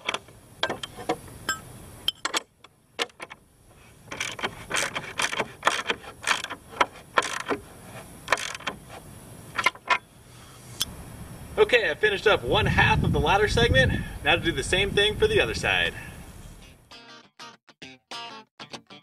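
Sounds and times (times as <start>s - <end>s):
ratchet clicking: 4.1s - 7.6s, 8.3s - 8.8s.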